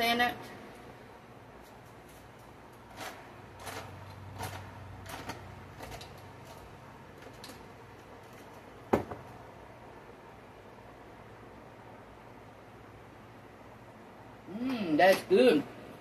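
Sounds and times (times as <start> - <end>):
kitchen items clicking and knocking: 2.9 - 9.3
sharp knock on counter: 8.9 - 9.2.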